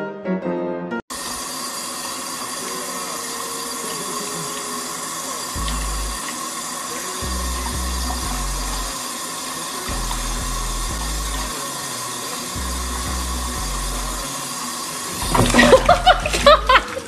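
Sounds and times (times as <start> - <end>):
running water hiss: 1.1 - 17.0
loud splashing: 3.9 - 17.0
background music with bass: 5.6 - 6.2, 7.2 - 9.0, 9.9 - 11.6, 12.6 - 14.3, 15.2 - 16.8.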